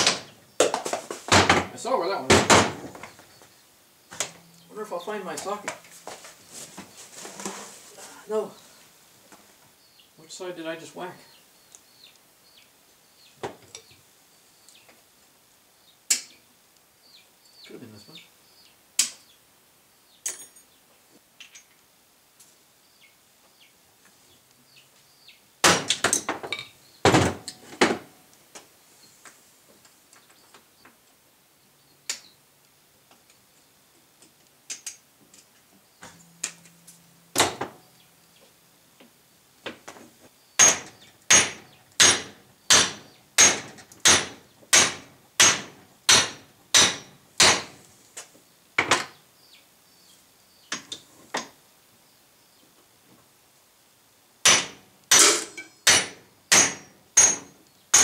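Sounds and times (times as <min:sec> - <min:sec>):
hammer striking metal: 0:36.2 - 0:37.8, 0:40.6 - 0:47.7, 0:54.5 - 0:58.0.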